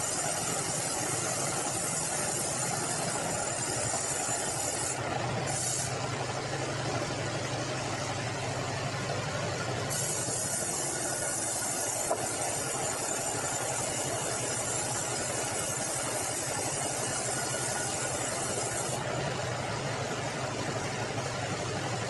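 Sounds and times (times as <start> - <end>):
band saw cutting log: 0.0 - 6.3, 9.8 - 19.2
mill machinery running: 0.0 - 22.0.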